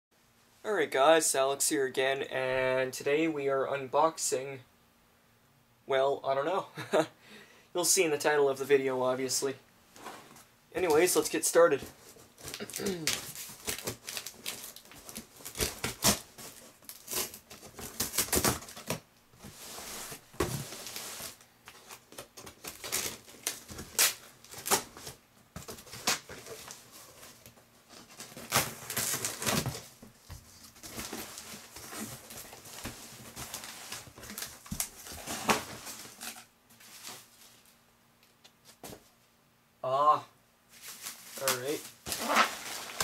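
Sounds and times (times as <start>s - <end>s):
cardboard flaps rustling: 11.8s - 37.7s
packing tape ripping: 12.4s - 19.0s, 21.7s - 26.8s, 28.2s - 29.8s, 41.0s - 43.0s.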